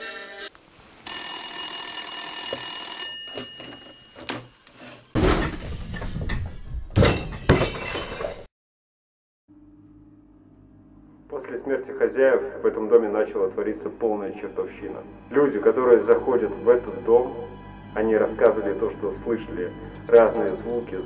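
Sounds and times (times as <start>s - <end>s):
telephone bell ringing: 1.1s - 4.6s
loud crashes and sharp knocks: 5.2s - 8.5s.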